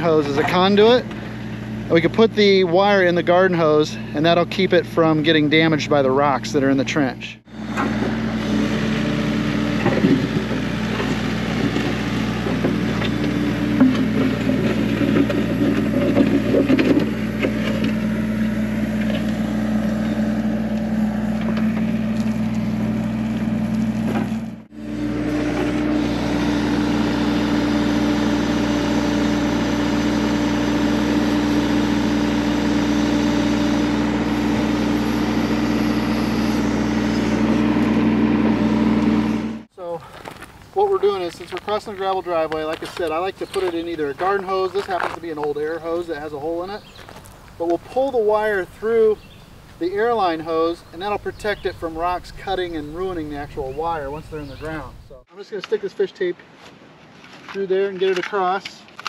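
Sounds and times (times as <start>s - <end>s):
diesel engine running: 0.0s - 55.3s
stones crunching and scraping: 10.2s - 23.0s, 39.9s - 48.7s.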